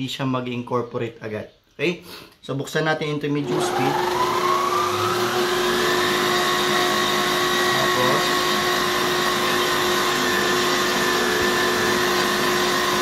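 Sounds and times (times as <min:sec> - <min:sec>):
electric stand mixer whisking: 0:03.4 - 0:13.0.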